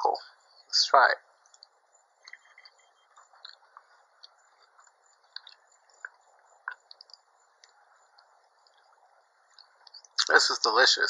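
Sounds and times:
person chewing food: 1.5 - 7.8
wet mouth clicks: 4.2 - 7.2.

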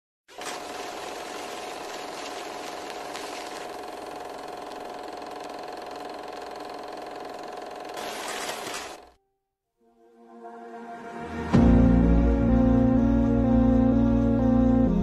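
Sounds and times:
tape rewinding whir: 0.3 - 9.1.

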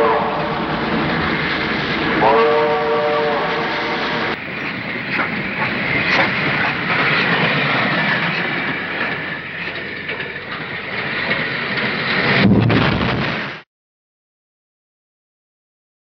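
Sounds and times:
steam train rumbling on rails: 0.0 - 13.6
wheels clicking on track: 3.6 - 12.4.

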